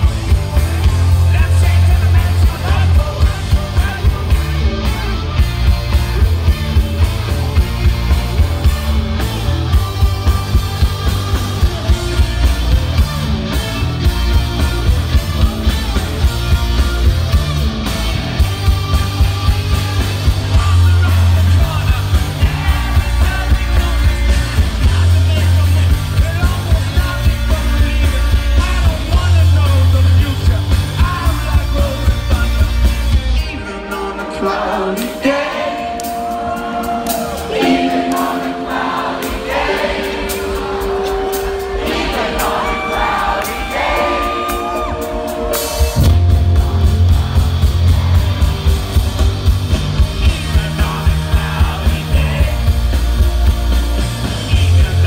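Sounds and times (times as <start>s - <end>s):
live rock band playing: 0.0s - 55.0s
person singing: 33.5s - 48.6s.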